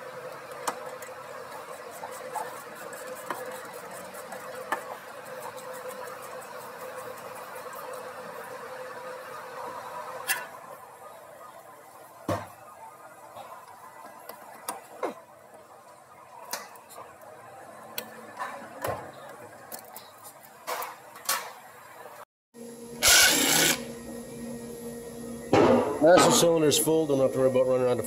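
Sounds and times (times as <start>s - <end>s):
cordless power tool burst: 23.0s - 23.9s.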